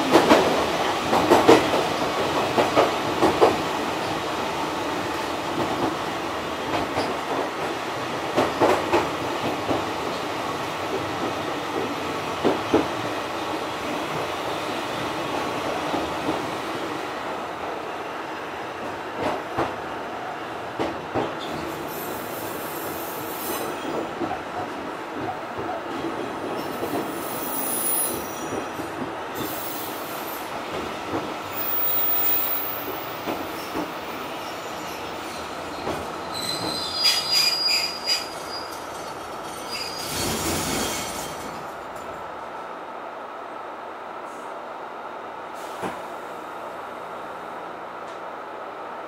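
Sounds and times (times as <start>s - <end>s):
railcar rumbling: 0.0s - 49.0s
high-pitched wheel squeals: 36.3s - 38.8s.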